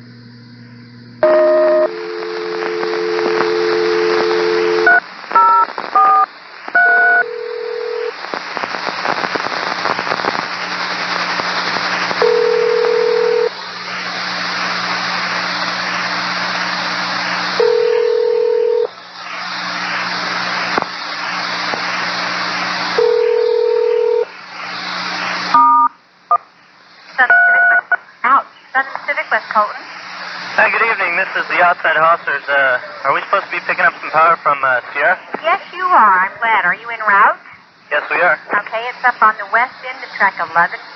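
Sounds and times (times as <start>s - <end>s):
low hum: 0.0s - 5.0s
long radio beep: 1.2s - 8.1s, 25.5s - 25.9s, 27.2s - 28.0s
radio hiss: 1.2s - 25.7s, 26.3s - 40.9s
touch-tone beeps: 6.8s - 7.3s.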